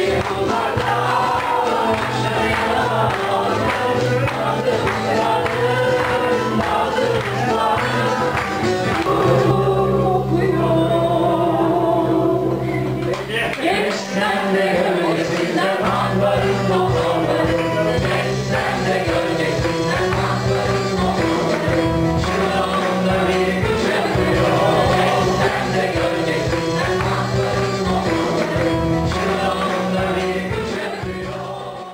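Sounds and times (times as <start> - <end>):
voices singing together: 0.0 - 13.0, 13.6 - 31.9
keyboard: 0.0 - 30.9
acoustic guitars: 23.7 - 26.7.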